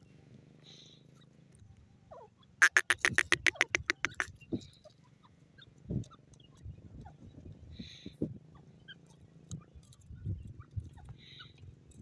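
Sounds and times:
soft low bird sounds: 0.0 - 12.0
francolin calling sharp notes: 2.6 - 4.3.

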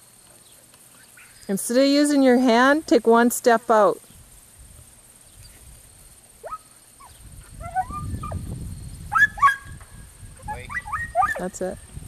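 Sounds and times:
pitched animal cries: 6.4 - 8.4, 10.4 - 11.6.

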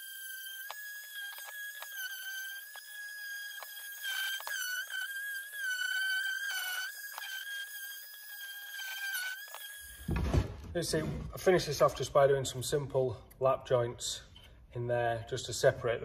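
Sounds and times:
orbital sander whining on wood: 0.0 - 10.3.

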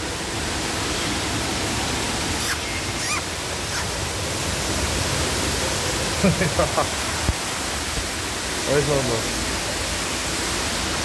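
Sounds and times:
steady rushing hiss: 0.0 - 11.0
bird chirps: 2.4 - 3.9.

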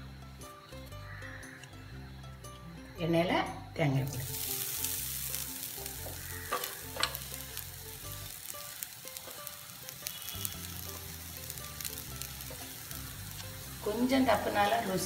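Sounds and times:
coconut sizzling in hot oil: 0.0 - 2.4, 3.8 - 15.0.

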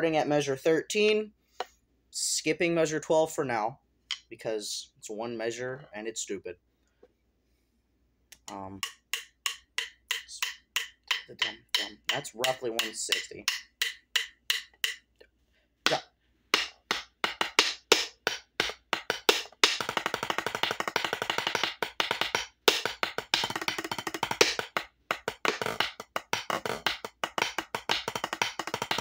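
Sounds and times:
drumsticks on practice pad: 8.4 - 15.1, 15.9 - 29.0.

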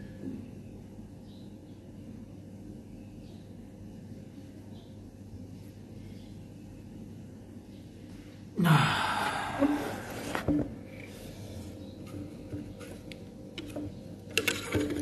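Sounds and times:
man gasping inhale: 8.6 - 10.1.

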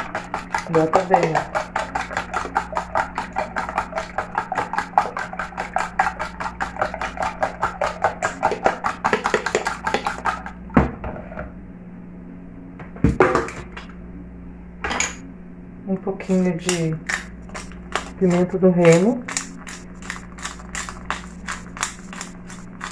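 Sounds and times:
fork beating eggs in plastic tub: 0.0 - 10.6, 16.2 - 22.9
low steady hum: 0.0 - 22.9.

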